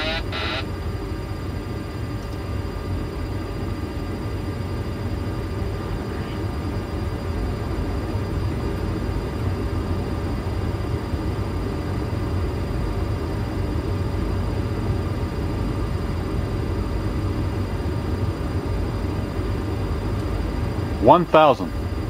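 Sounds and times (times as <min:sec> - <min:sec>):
faint steady tones: 0:00.0 - 0:01.3
airflow and engine rush: 0:00.0 - 0:22.0.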